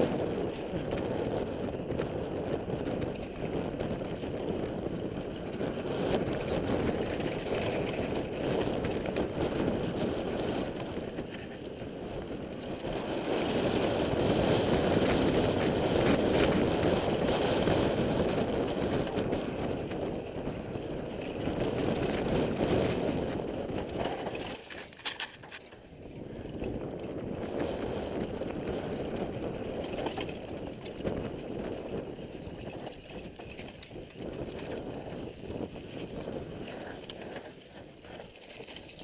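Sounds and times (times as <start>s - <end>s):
bike rattling: 0.0s - 39.0s
bike tyres rumbling over dirt: 0.0s - 39.0s.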